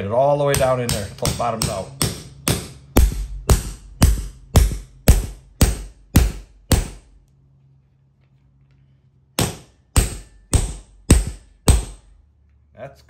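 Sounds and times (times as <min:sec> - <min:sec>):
hammer striking metal anchor: 0:00.4 - 0:07.1, 0:09.4 - 0:12.1.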